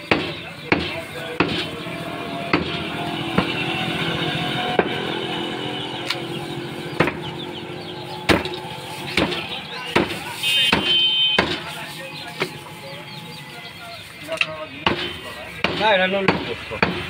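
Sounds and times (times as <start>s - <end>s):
vehicle engine passing: 0.8s - 14.7s
meat cleaver chopping on wood: 10.0s - 11.7s.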